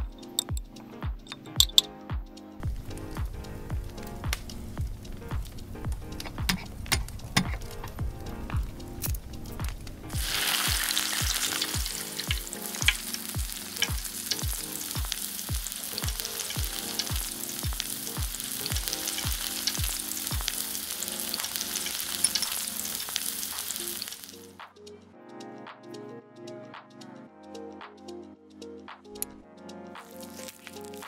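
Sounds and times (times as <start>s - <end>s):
egg sizzling in hot oil: 10.1s - 24.5s.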